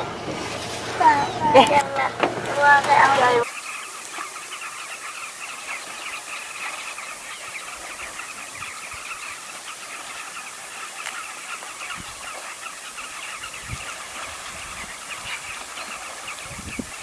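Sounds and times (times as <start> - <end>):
low bumps: 0.0 - 3.4
chorus of high chirps: 1.0 - 17.0.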